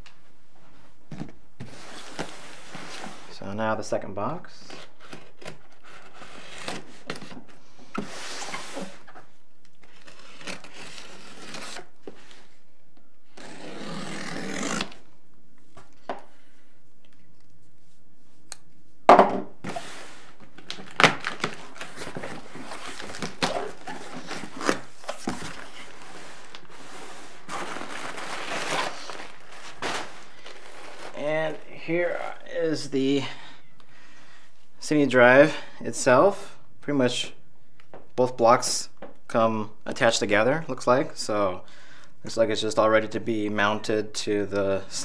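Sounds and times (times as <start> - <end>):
packing tape tearing: 9.6 - 12.0, 13.3 - 15.0, 20.6 - 31.2
packaging rustling: 19.7 - 31.7.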